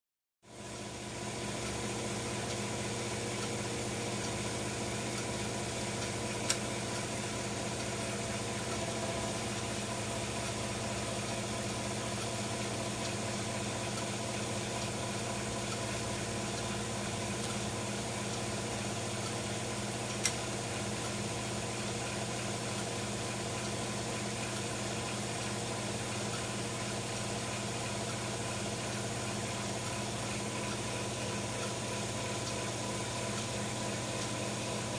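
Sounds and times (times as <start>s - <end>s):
low mechanical hum: 0.5s - 34.9s
sharp clicks: 6.4s - 6.6s, 20.1s - 20.4s.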